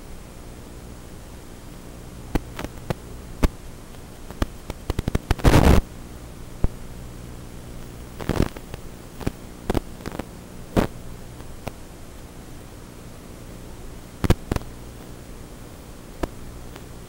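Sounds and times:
static hiss: 0.0s - 17.0s
crackling clicks: 2.3s - 5.9s, 6.6s - 6.8s, 7.8s - 12.3s, 14.2s - 15.2s, 16.1s - 17.0s
loud burst of noise: 4.8s - 5.9s.

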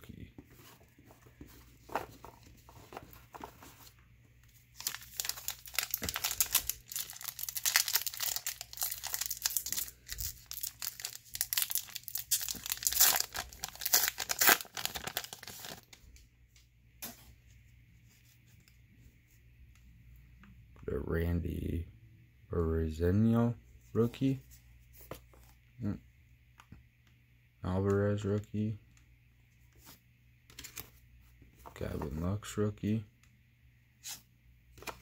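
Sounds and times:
plastic wrapper tearing and crinkling: 4.8s - 15.9s.

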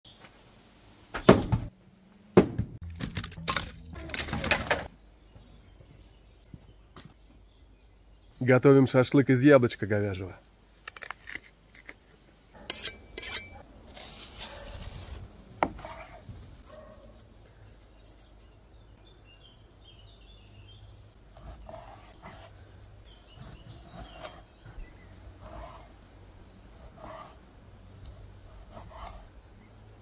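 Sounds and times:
knife honing scrapes: 12.6s - 15.0s.

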